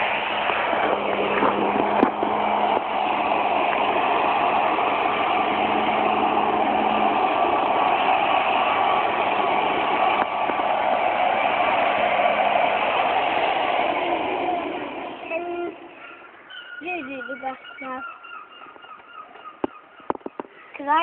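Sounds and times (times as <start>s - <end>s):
electric lawnmower whirring: 0.0s - 16.1s.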